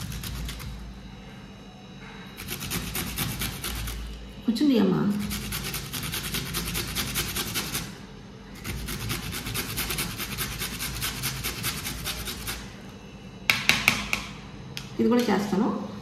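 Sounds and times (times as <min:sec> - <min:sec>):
carrot grating on metal grater: 0:00.0 - 0:00.8, 0:02.4 - 0:04.1, 0:05.1 - 0:08.0, 0:08.6 - 0:12.7.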